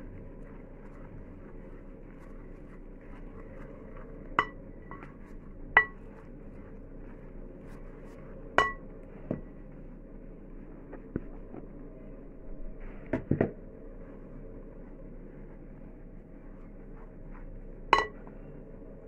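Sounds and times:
utensil clinking against bowl: 5.8 - 6.0, 18.0 - 18.2.

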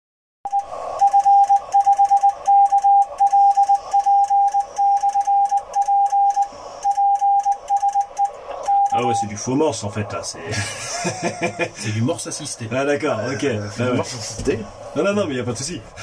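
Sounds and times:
morse code tone: 0.5 - 9.2.

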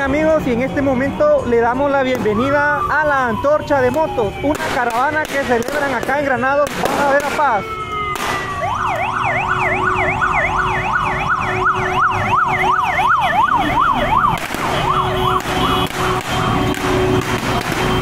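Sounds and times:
motorcycle and vehicle engines: 0.0 - 18.0
electronic siren yelping: 2.1 - 5.2, 5.8 - 18.0.

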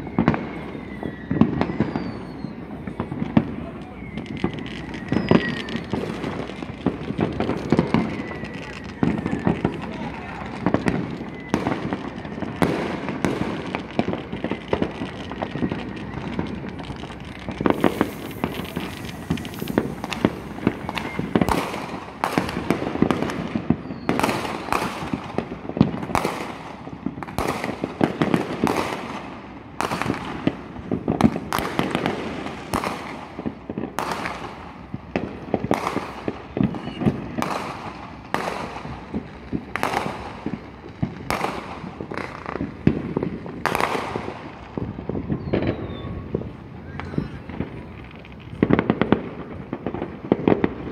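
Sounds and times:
fireworks banging: 0.0 - 50.9.

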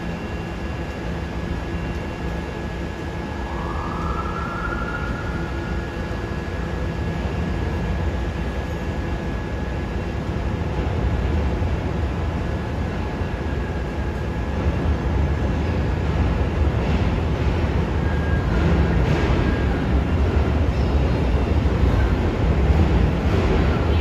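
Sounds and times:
subway train wheels rumbling: 0.0 - 24.0
faint high squeal: 3.3 - 6.4.

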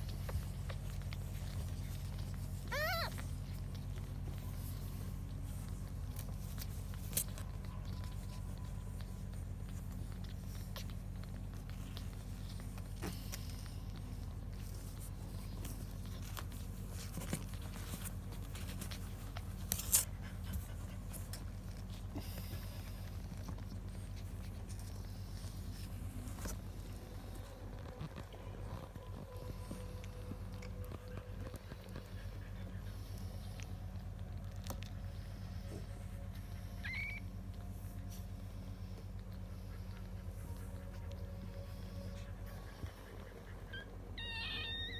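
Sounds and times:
faint scuffling clicks: 0.0 - 43.1
low steady hum: 0.0 - 44.9
puppies rustling on blanket: 0.0 - 44.9
puppy squeaking: 2.6 - 3.6, 36.8 - 37.4, 43.2 - 44.9.

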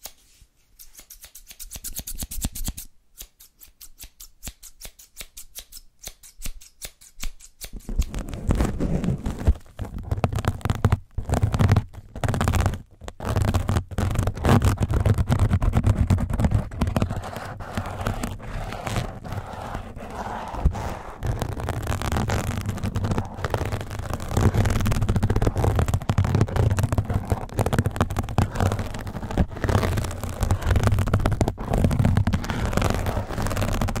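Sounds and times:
scrub pad rubbing on microphone: 8.0 - 34.0.

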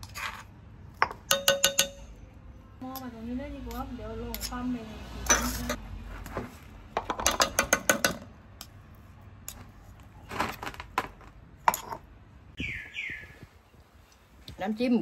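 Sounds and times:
stone pestle tapping steel pot: 1.0 - 2.1.

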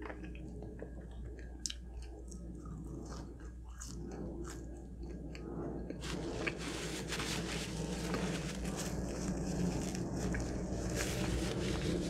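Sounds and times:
person chewing food: 0.0 - 7.1.

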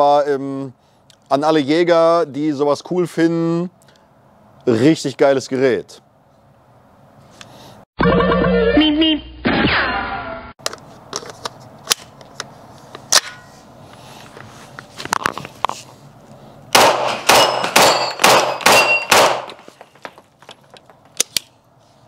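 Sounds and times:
metallic ring of steel plates: 13.2 - 13.6
pistol shots: 16.7 - 19.6
gun handling clicks: 21.2 - 21.5.

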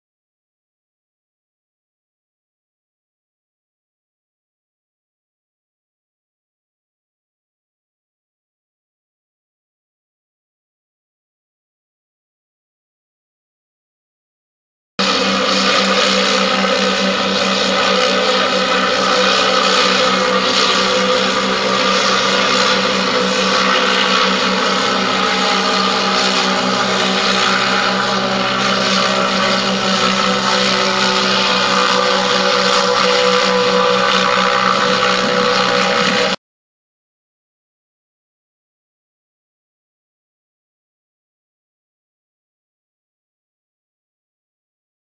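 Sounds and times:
propeller engines droning: 15.0 - 36.4.

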